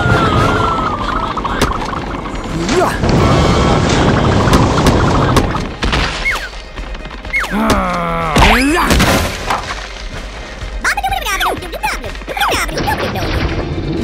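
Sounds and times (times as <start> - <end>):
water splash dousing flames: 1.3 - 5.5.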